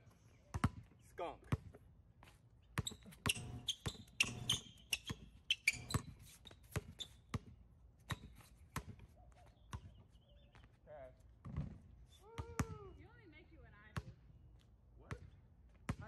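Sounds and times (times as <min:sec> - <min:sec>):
basketball bouncing on concrete: 0:00.5 - 0:01.8, 0:02.7 - 0:09.1, 0:11.4 - 0:12.9, 0:13.9 - 0:14.2, 0:15.1 - 0:16.0.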